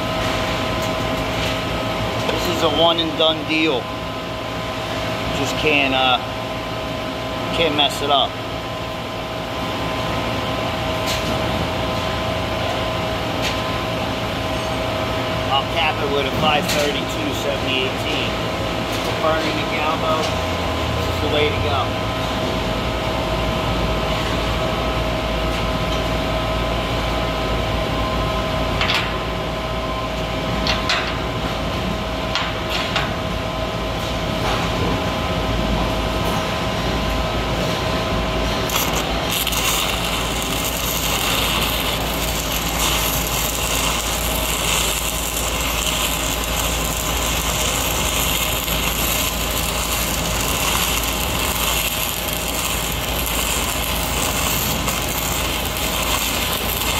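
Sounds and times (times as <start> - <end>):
engine-driven welder running: 0.0 - 33.8, 34.4 - 56.9
welding arc crackling: 38.6 - 56.9.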